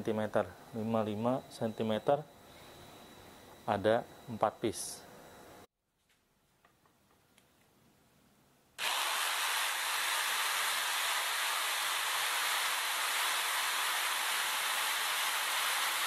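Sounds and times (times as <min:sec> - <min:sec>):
electric jigsaw sawing wood: 0:08.8 - 0:16.0.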